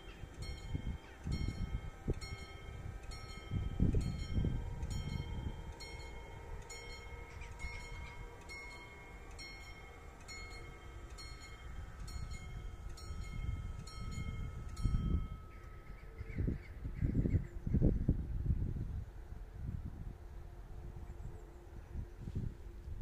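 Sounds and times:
level crossing warning bell ringing: 0:00.0 - 0:15.9.

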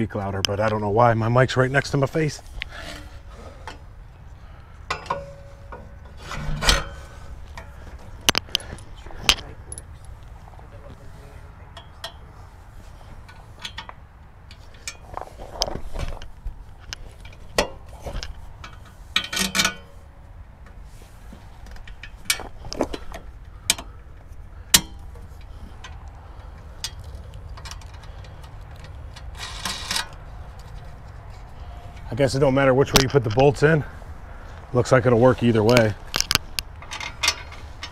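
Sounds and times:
low steady background hum: 0:00.0 - 0:37.9
metallic clicks and rattles of bolts: 0:04.9 - 0:10.2, 0:13.2 - 0:20.0, 0:21.7 - 0:30.9, 0:35.7 - 0:37.9.

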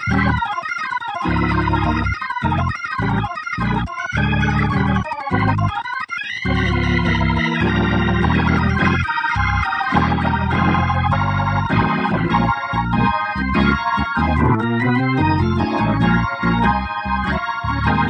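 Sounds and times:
organ playing held chords: 0:00.0 - 0:18.0.

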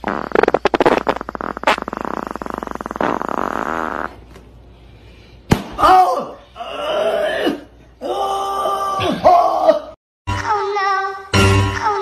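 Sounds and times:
air escaping balloon neck: 0:00.0 - 0:04.4.

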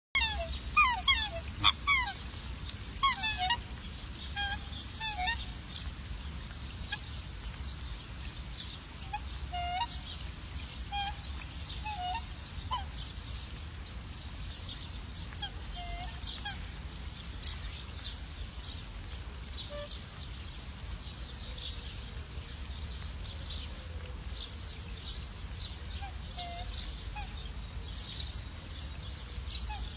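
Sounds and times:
swans honking: 0:00.2 - 0:05.8, 0:08.8 - 0:13.0, 0:15.3 - 0:16.8, 0:25.9 - 0:27.4.

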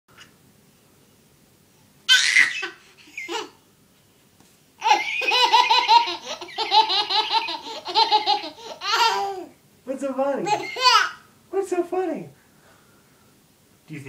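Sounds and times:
baby belly-laughing: 0:02.1 - 0:03.6, 0:04.8 - 0:09.6, 0:10.4 - 0:11.2.

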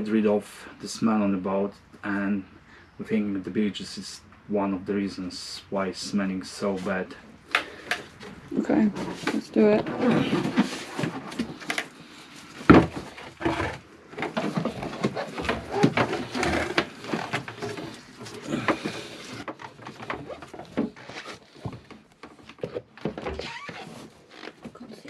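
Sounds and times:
plastic tubing rustling: 0:06.8 - 0:24.8.

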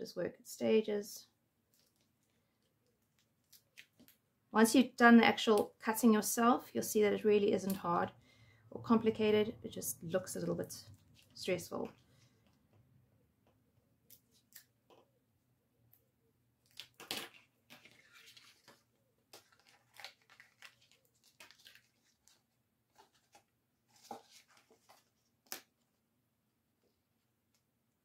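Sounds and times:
paper rustling and crinkling: 0:16.6 - 0:25.8.

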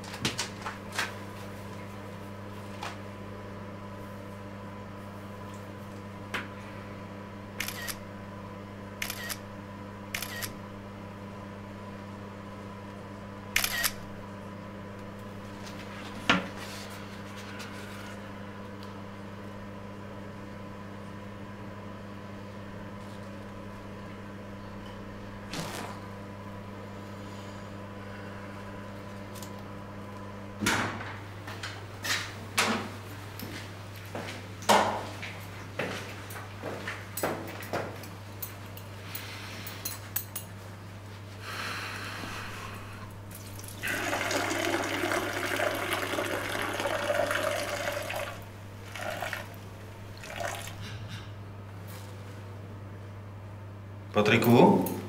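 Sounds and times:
steady electrical hum: 0:00.0 - 0:55.0
camera shutter clicks: 0:13.6 - 0:14.0.

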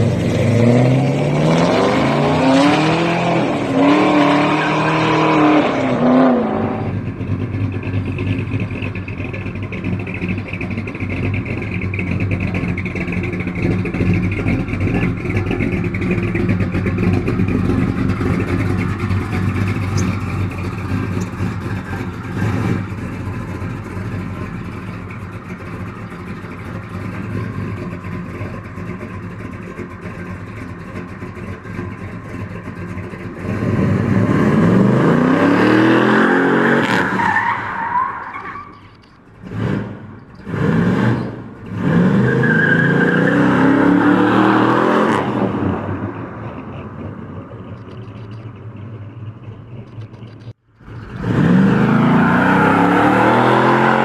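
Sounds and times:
engine revving sharply: 0:00.0 - 0:07.0, 0:33.4 - 0:37.2, 0:39.4 - 0:46.0, 0:50.9 - 0:54.0
car engine: 0:00.0 - 0:54.0
car engine idling: 0:06.9 - 0:33.7, 0:46.1 - 0:51.1.

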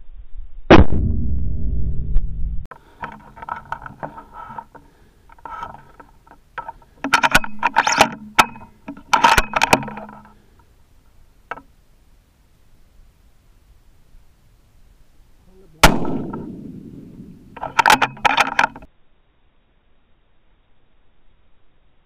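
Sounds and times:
rifle handling scrapes and knocks: 0:02.7 - 0:10.4, 0:17.5 - 0:18.9.

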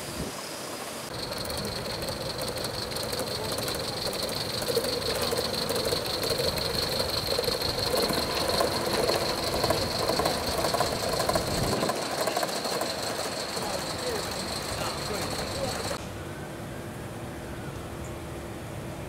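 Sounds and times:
steady high tone: 0:01.1 - 0:16.0
steam locomotive exhaust beats: 0:01.1 - 0:16.0
wheels clattering on rail joints: 0:01.1 - 0:16.0.

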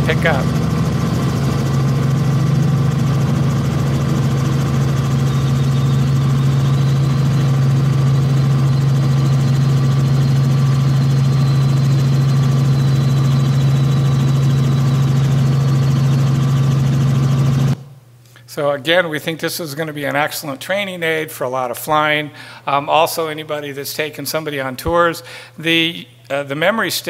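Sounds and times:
helicopter engine and rotors drone: 0:00.0 - 0:17.8
faint high whine: 0:00.0 - 0:20.8.

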